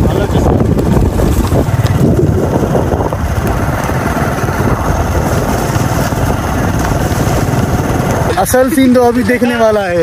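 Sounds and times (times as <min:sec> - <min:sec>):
motorcycle engine rumbling: 0:00.0 - 0:10.0.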